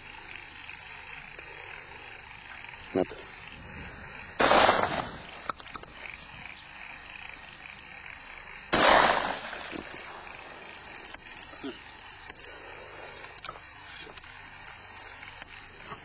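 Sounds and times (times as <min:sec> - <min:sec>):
shotgun shots: 0:04.4 - 0:05.5, 0:08.7 - 0:10.4.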